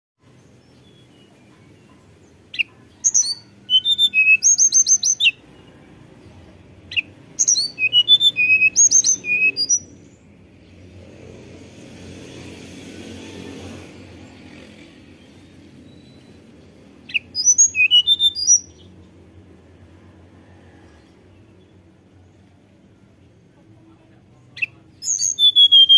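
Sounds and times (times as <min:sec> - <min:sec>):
bird singing whistled song: 0:02.5 - 0:05.8, 0:06.9 - 0:10.2, 0:15.3 - 0:19.0, 0:24.6 - 0:25.9.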